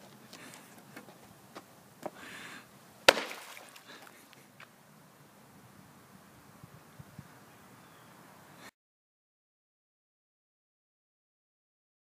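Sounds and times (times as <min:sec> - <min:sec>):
flat cutout smacking water: 0:03.1 - 0:04.1
water splashing: 0:03.1 - 0:04.1.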